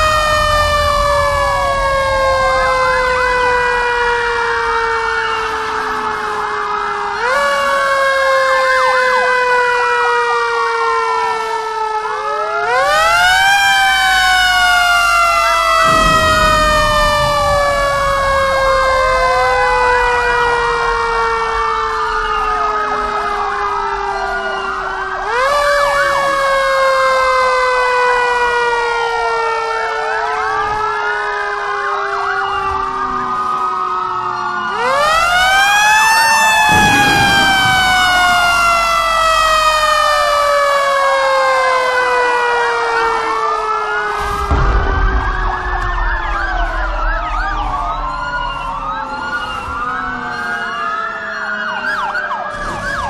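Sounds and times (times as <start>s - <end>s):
low rumble: 0.0s - 5.0s, 15.6s - 25.2s, 36.6s - 40.6s, 44.3s - 50.3s
fire engine siren: 0.0s - 53.0s
faster wavering siren tone: 14.8s - 27.0s, 34.4s - 40.9s, 44.4s - 53.0s.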